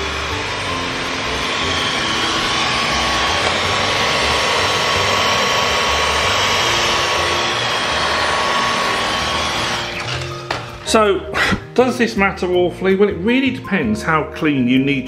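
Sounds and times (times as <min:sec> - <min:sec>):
vacuum cleaner running: 0:00.0 - 0:11.5.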